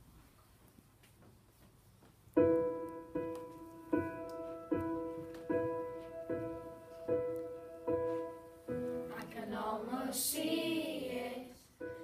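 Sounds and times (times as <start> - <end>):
piano chords ringing: 2.4 - 12.0.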